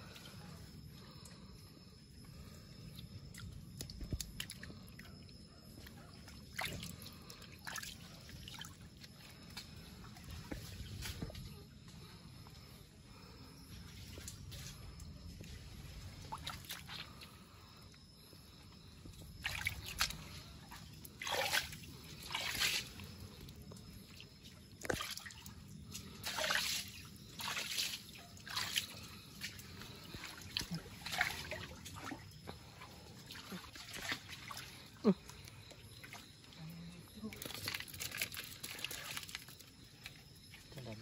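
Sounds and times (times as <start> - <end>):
faint water trickle: 0.0 - 41.0
water splashing from wading: 21.2 - 23.0, 26.2 - 34.9.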